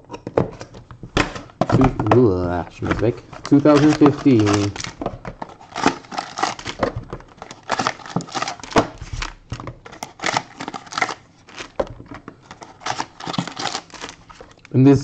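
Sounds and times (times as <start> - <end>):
foil packs crinkling: 2.7 - 11.8, 12.4 - 14.7.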